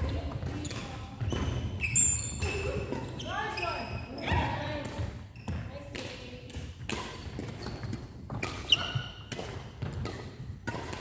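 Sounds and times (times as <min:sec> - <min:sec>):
shoe squeaks on floor: 0:00.0 - 0:04.5, 0:05.3 - 0:05.8, 0:07.1 - 0:09.3
rackets hitting shuttlecock: 0:00.1 - 0:03.2, 0:04.2 - 0:11.0.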